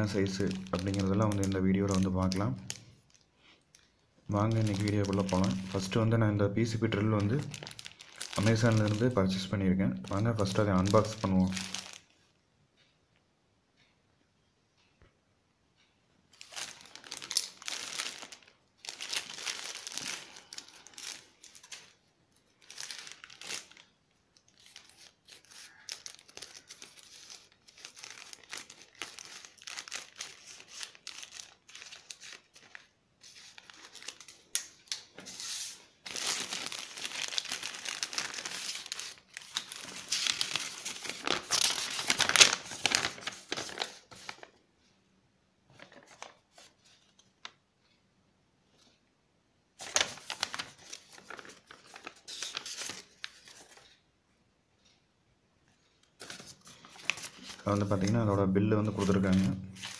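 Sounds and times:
paper rustling: 0.0s - 3.2s, 4.3s - 6.1s, 6.7s - 9.2s, 16.4s - 44.6s, 45.7s - 47.6s, 49.8s - 54.0s, 56.1s - 59.9s
plastic mailer bag crinkling: 0.0s - 3.2s, 4.3s - 9.5s, 10.1s - 12.1s, 16.4s - 44.6s, 45.8s - 46.7s, 49.8s - 53.9s, 56.2s - 59.9s.

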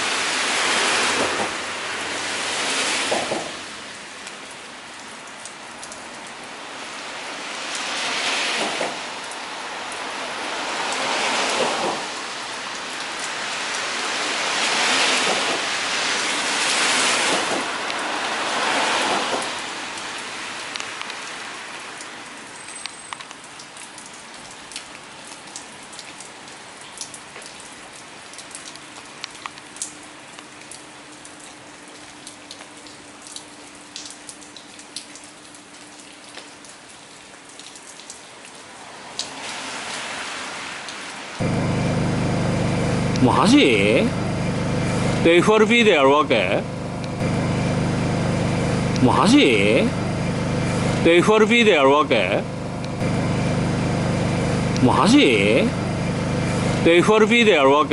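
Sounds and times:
rain hiss: 0.0s - 57.9s
water drips ticking: 4.2s - 6.4s, 22.0s - 39.3s.

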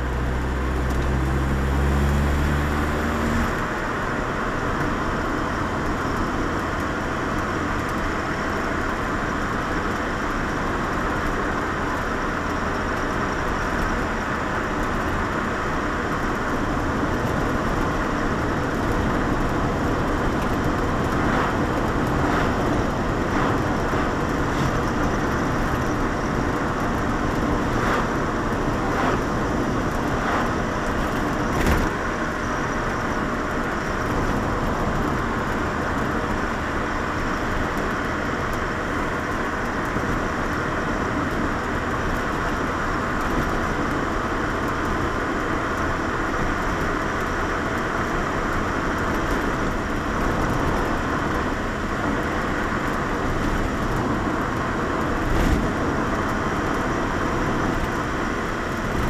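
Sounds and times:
car engine and tyre noise: 0.0s - 59.0s.

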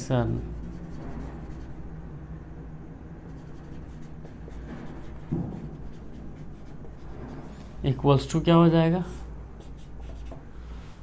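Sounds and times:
low room hum: 0.0s - 11.0s
marker writing on whiteboard: 0.5s - 1.8s, 3.3s - 7.7s, 9.1s - 10.5s.

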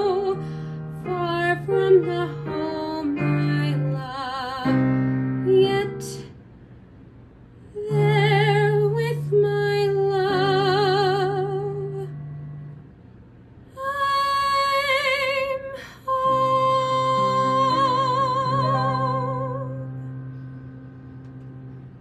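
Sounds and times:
girl singing with vibrato: 0.0s - 6.3s, 7.7s - 12.3s, 13.8s - 20.3s
accompaniment chords: 16.3s - 22.0s.

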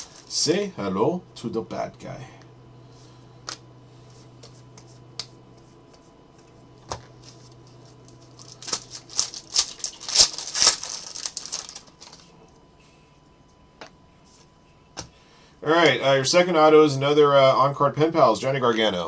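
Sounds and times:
foil wrapper crinkling: 0.0s - 0.4s, 7.4s - 12.4s.

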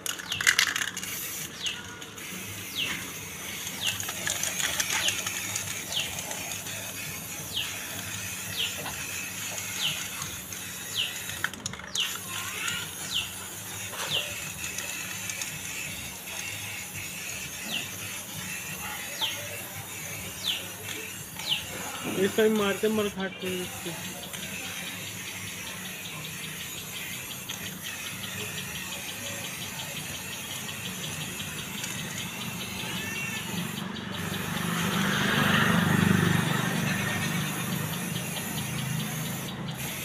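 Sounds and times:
spray paint can hissing: 0.0s - 40.0s.

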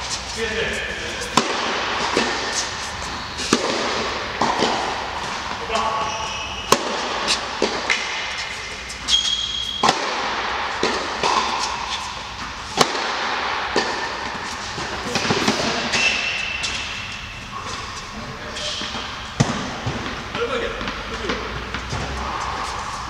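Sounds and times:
shoes squeaking on court: 0.0s - 10.0s, 13.9s - 19.4s
tennis balls bouncing: 0.0s - 17.8s, 18.9s - 23.0s
tennis balls hit by rackets: 0.0s - 17.8s, 18.6s - 23.0s.

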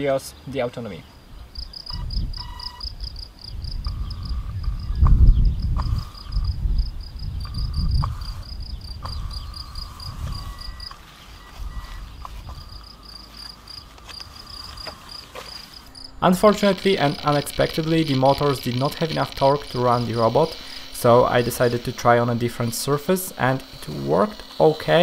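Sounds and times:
crickets chirping: 1.0s - 25.0s
thin high whine: 1.8s - 3.2s, 7.4s - 25.0s.

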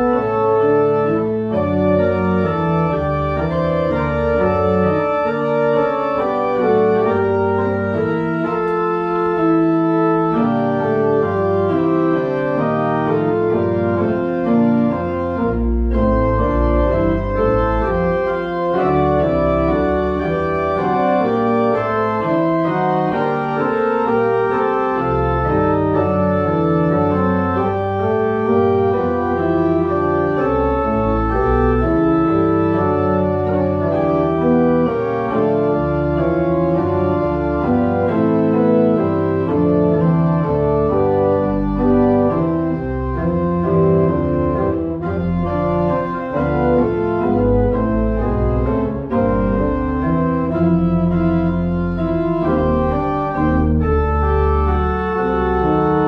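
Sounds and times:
pipe organ playing chords: 0.0s - 56.0s.

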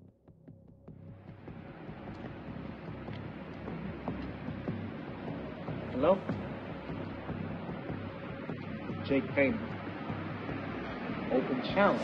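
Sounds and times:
low rumble and hiss: 0.9s - 12.0s.

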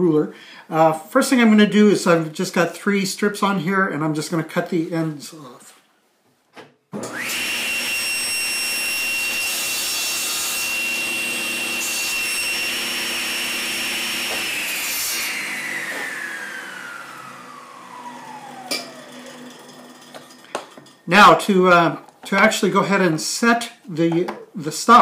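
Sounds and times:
saw blade cutting wood: 7.0s - 20.8s
table saw whining: 7.0s - 21.3s.

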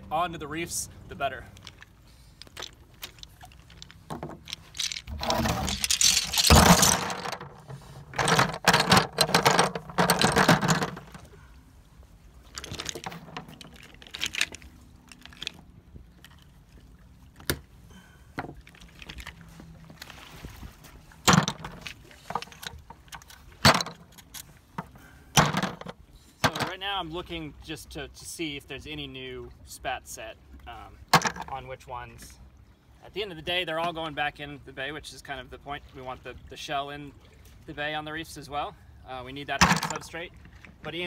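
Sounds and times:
oyster shells clattering and scraping: 1.4s - 11.3s, 12.4s - 16.5s, 18.4s - 19.5s, 21.2s - 26.8s, 31.1s - 31.6s, 39.6s - 40.1s.

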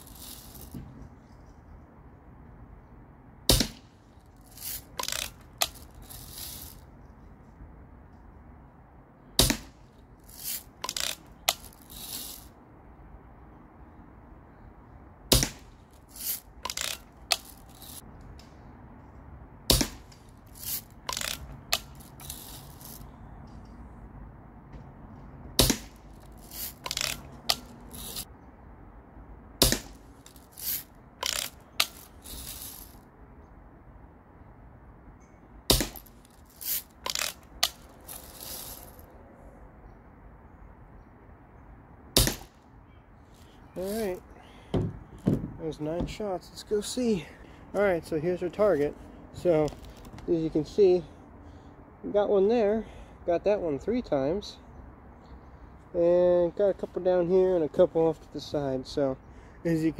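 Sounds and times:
bb gun shots: 3.5s - 3.8s.

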